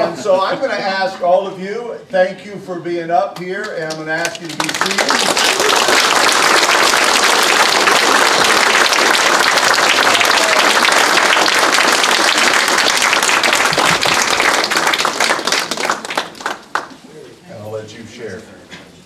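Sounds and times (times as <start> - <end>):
crowd applauding: 3.8 - 17.1.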